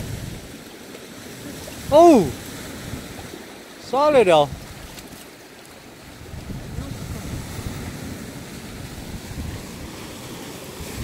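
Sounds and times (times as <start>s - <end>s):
wind rumbling on microphone: 0.0s - 0.7s, 1.3s - 3.4s, 4.4s - 5.2s, 6.0s - 11.0s
surf washing against rocks: 0.0s - 11.0s.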